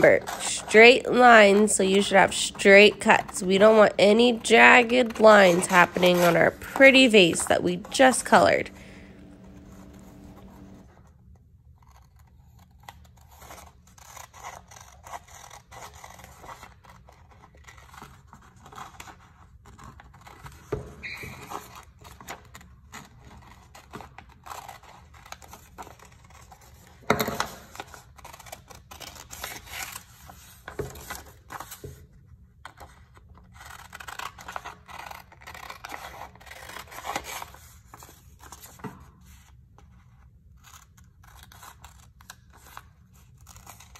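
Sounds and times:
paper rustling: 0:00.0 - 0:10.8
scissors snipping paper: 0:00.0 - 0:10.8, 0:40.6 - 0:43.9.

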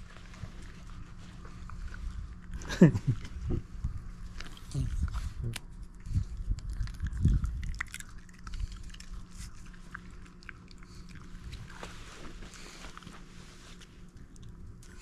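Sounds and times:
dog crunching a treat: 0:04.2 - 0:13.2.

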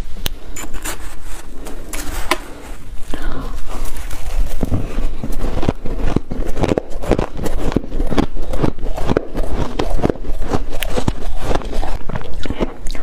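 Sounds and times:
metal spoon scraping ice: 0:00.5 - 0:02.8
crunching shaved ice: 0:03.4 - 0:13.0.

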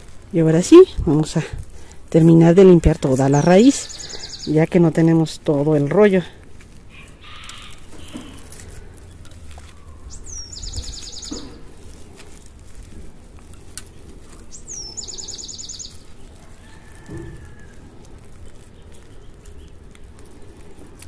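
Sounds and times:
dry soil crumbling by hand: 0:00.0 - 0:21.0
bird singing trill: 0:03.0 - 0:04.9, 0:09.1 - 0:11.6, 0:14.4 - 0:16.4.

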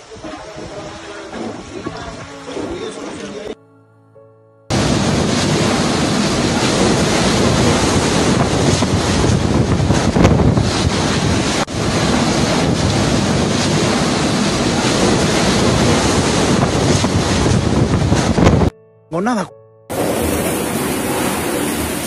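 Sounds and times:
wind blasting microphone: 0:04.7 - 0:18.7, 0:19.9 - 0:22.0.

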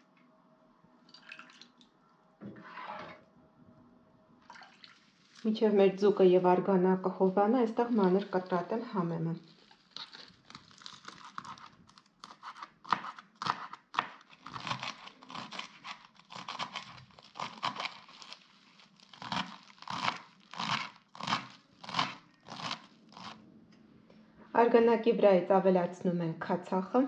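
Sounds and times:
knife chopping herbs on board: 0:12.3 - 0:16.8.

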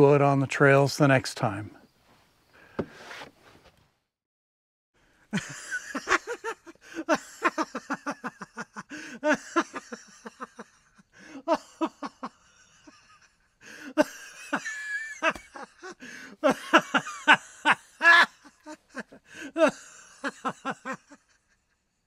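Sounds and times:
high giggling laughter: 0:05.3 - 0:21.8.

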